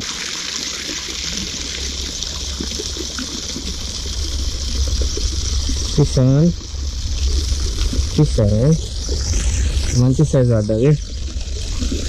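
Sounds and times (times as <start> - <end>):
water gushing into a pond: 0.0 - 12.0
low rumble: 3.6 - 12.0.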